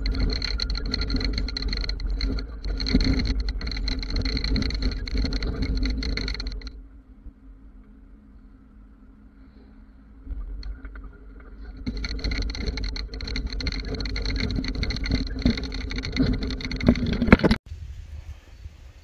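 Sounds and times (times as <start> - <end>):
trailer load rattling: 0.0 - 6.8, 10.3 - 17.6
truck engine running: 0.0 - 6.8, 10.3 - 17.6.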